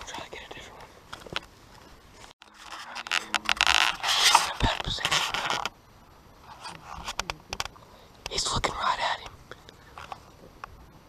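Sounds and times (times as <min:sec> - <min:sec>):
close rustling and scraping: 0:00.0 - 0:05.8, 0:06.4 - 0:07.8.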